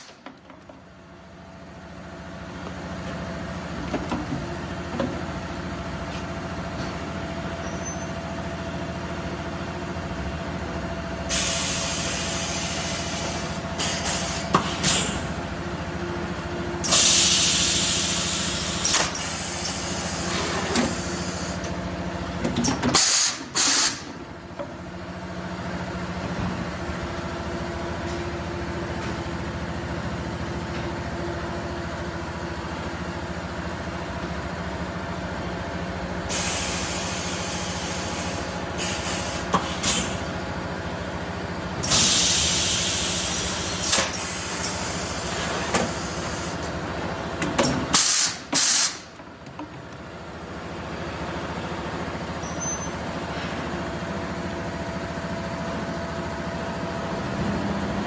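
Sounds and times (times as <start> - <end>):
compressed air hissing: 11.3 - 15.2, 16.8 - 21.6, 23.0 - 24.1, 36.3 - 40.2, 41.8 - 46.6, 47.9 - 49.1.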